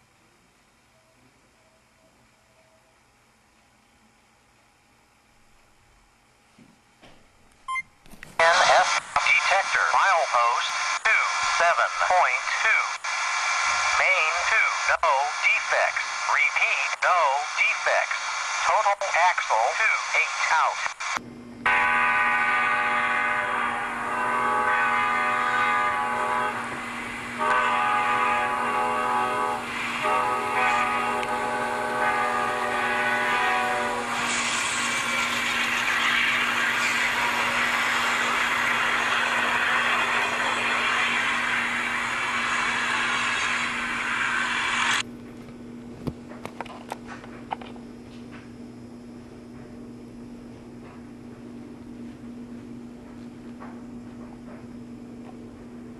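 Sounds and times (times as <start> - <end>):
steady low hum: 0.0 - 55.9
model locomotive chime horn: 21.7 - 26.6, 27.4 - 34.1.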